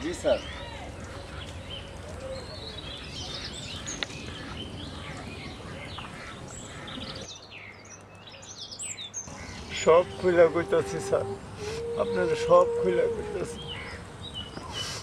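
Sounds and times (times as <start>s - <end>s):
birds chirping: 0.0s - 15.0s
background hiss: 9.2s - 15.0s
low hum: 9.3s - 14.6s.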